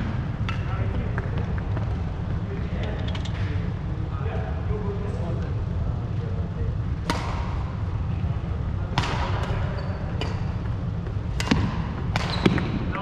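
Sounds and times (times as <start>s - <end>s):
rackets hitting shuttlecock: 0.1s - 2.0s, 7.0s - 7.7s, 8.9s - 12.9s.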